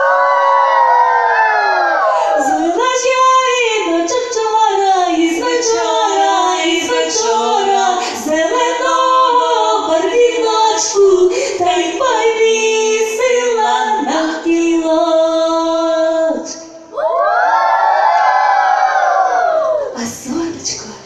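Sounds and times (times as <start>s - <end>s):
girls singing unaccompanied: 2.4s - 16.6s.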